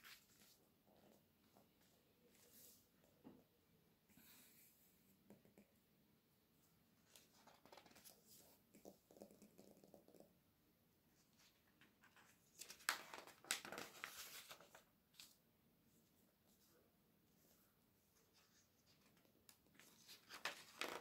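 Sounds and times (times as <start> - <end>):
page turning with paper crinkling: 11.4 - 15.4, 18.8 - 21.0.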